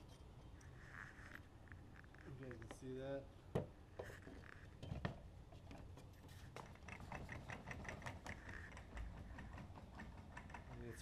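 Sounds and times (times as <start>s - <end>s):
faint metal clicks and knocks: 4.0s - 11.0s.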